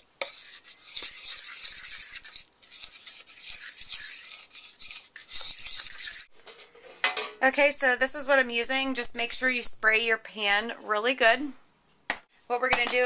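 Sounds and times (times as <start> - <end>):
utensil scraping a bowl: 0.0 - 6.4.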